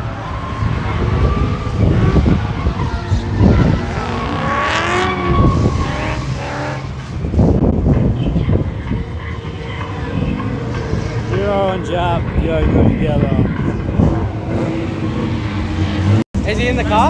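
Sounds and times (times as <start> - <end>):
car engine revving: 0.0 - 17.0
tyre squeal: 3.4 - 6.9.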